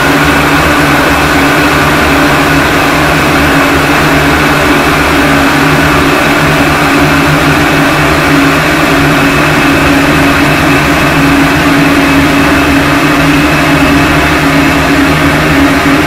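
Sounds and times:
steady low drone: 0.0 - 16.0.

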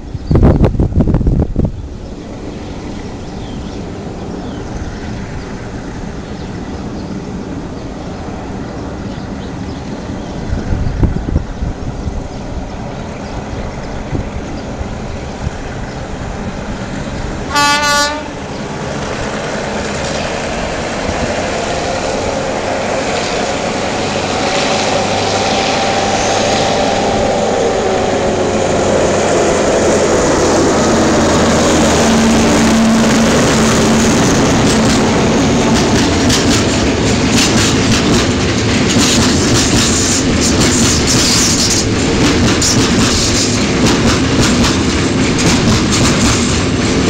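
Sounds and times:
diesel locomotive engine passing: 0.0 - 47.0
locomotive horn blast: 17.5 - 18.4, 24.2 - 28.8.

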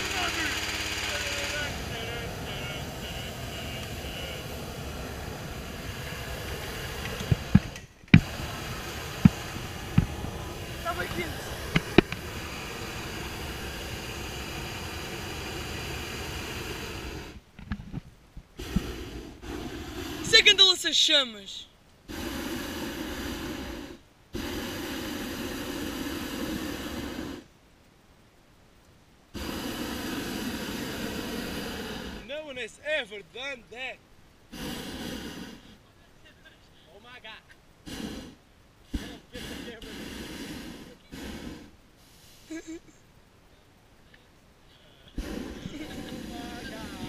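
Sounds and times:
inflation fan rushing: 0.0 - 17.5, 18.5 - 20.8, 22.0 - 27.5, 29.3 - 32.4, 34.5 - 35.8, 37.8 - 42.8, 45.1 - 47.0
propane burner roaring: 0.0 - 21.1, 22.0 - 27.5, 29.3 - 33.0, 34.4 - 35.9, 37.0 - 43.0, 45.1 - 47.0.

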